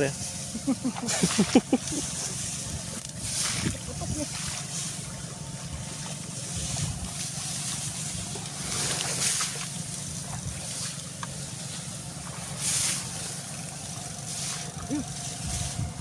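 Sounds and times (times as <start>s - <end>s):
grass swishing and rustling: 0.0s - 16.0s
low rumble: 0.0s - 16.0s.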